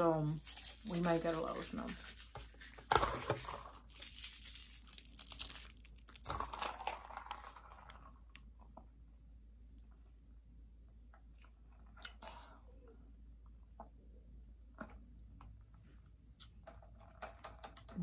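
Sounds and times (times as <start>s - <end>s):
packaging rustling and crinkling: 0.2s - 8.0s.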